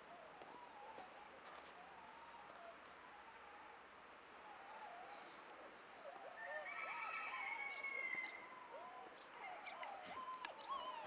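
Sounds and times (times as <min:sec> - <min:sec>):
puppy whimpering: 0:08.8 - 0:11.0.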